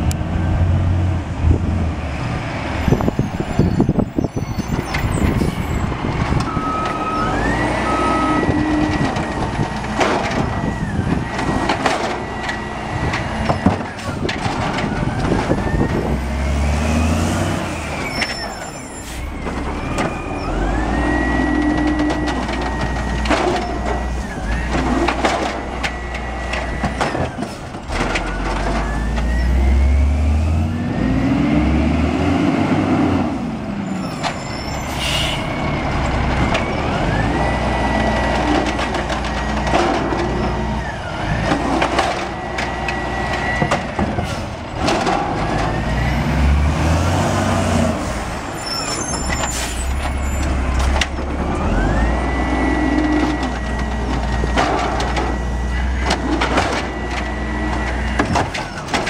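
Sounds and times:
diesel engine revving: 0.0 - 59.0
carts banging against hopper: 4.7 - 16.2, 19.4 - 29.5, 35.9 - 59.0.

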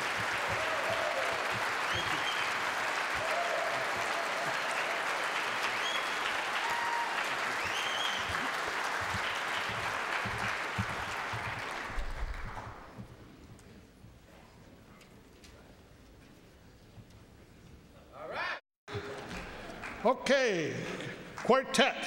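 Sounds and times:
crowd calling out: 0.0 - 8.5
audience applauding: 0.0 - 13.0, 19.0 - 20.1.

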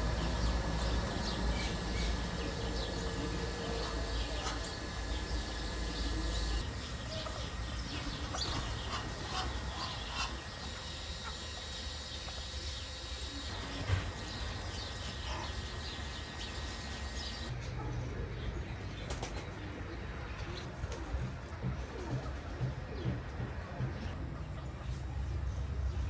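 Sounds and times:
birds chirping and calling: 0.0 - 20.7.

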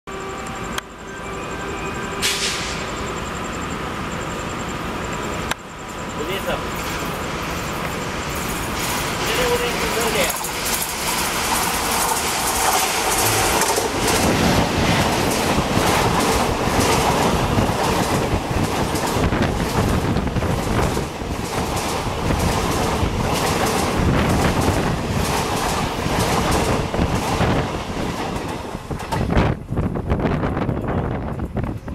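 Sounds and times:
train rushing past: 0.1 - 31.9
wheels clicking over rail joints: 7.8 - 29.4.

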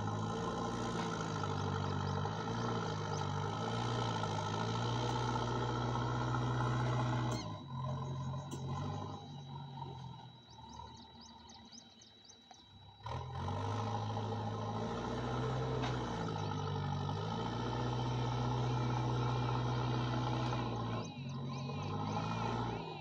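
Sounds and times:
diesel engine running: 0.0 - 23.0
faint high chirps: 0.7 - 13.0, 17.8 - 23.0.

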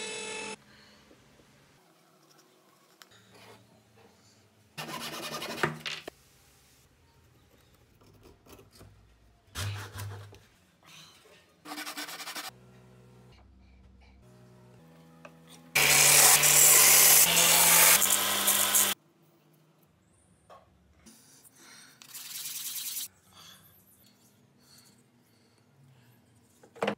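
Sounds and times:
loud steady rubbing: 15.8 - 19.0.

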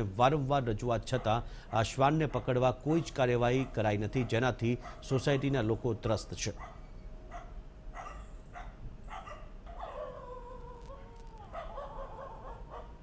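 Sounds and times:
dogs barking: 1.1 - 5.6, 6.6 - 13.0
dog's drawn-out cry: 6.6 - 13.0.

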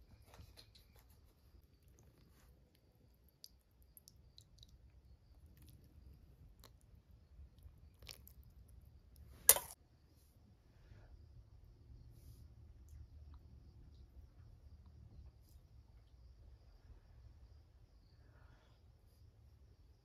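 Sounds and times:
metal spoon in steel bowl: 9.5 - 9.8
spoon clinking against bowl: 9.5 - 9.8.

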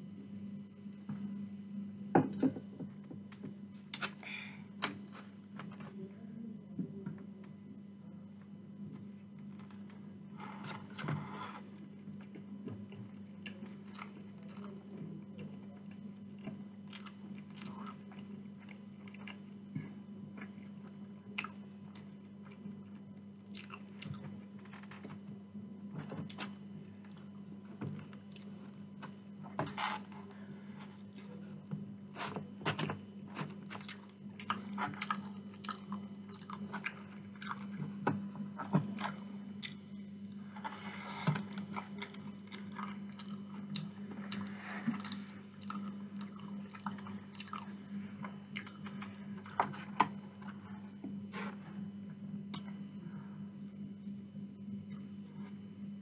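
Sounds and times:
steady low hum: 0.0 - 56.0
chewing and biting chips: 16.9 - 19.4, 23.5 - 24.2, 33.6 - 38.0, 40.6 - 47.7.

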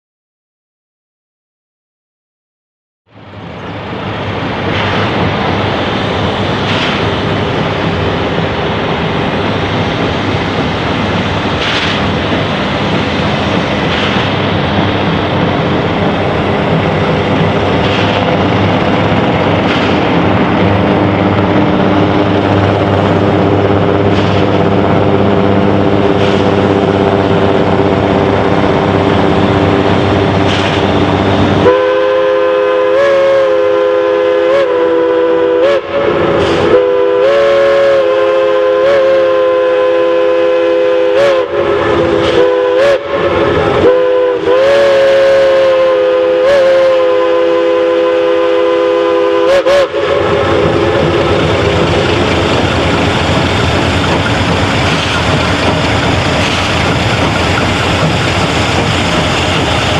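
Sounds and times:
steam train running rumble: 3.1 - 59.9
steam whistle blowing: 31.6 - 51.4.

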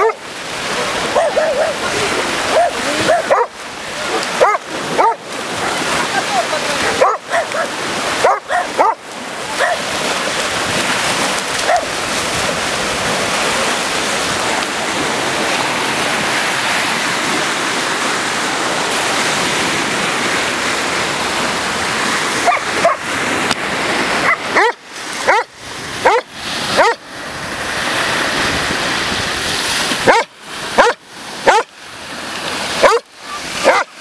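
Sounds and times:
dog barking: 0.0 - 0.2, 1.0 - 5.9, 6.8 - 9.9, 11.6 - 11.9, 22.4 - 23.0, 24.2 - 27.0, 30.0 - 31.7, 32.8 - 33.9
sea surf breaking on shore: 0.0 - 34.0.

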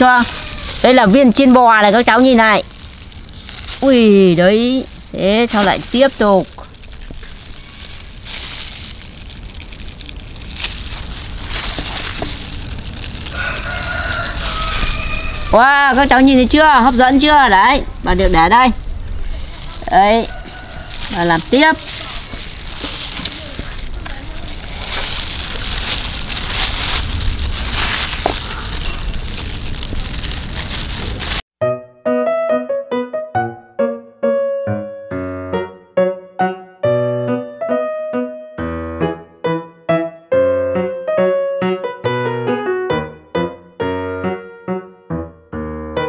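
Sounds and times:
plastic gloves and bag crinkling: 0.0 - 31.4
rooster crowing: 0.2 - 0.8, 13.2 - 16.0, 20.0 - 21.4
steady low rumble: 0.3 - 31.4.

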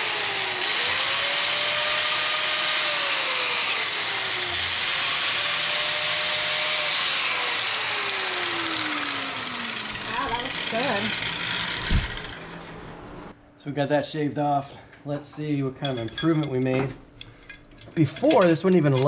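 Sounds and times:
angle grinder grinding metal: 0.0 - 12.9.

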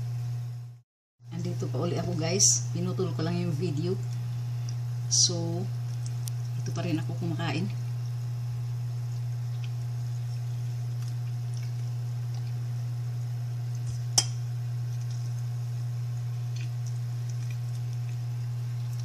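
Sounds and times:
steady low hum: 0.0 - 19.0
person eating by hand: 4.0 - 5.0, 5.8 - 6.8, 7.9 - 19.0.

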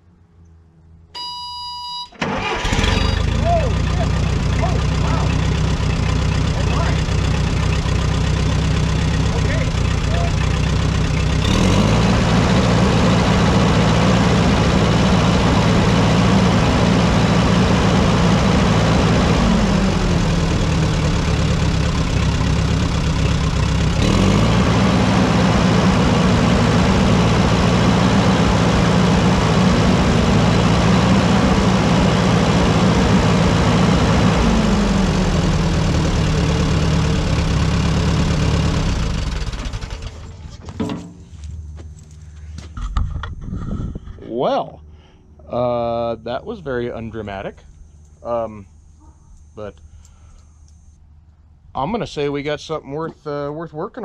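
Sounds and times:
petrol engine running: 2.2 - 43.3.

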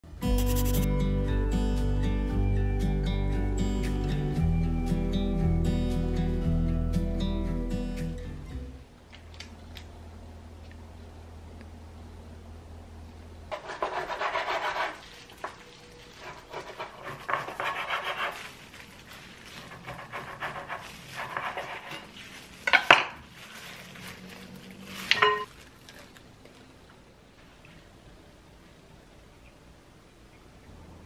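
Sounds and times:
knife sawing through ribs: 13.6 - 15.1, 16.2 - 18.5, 19.5 - 22.1.

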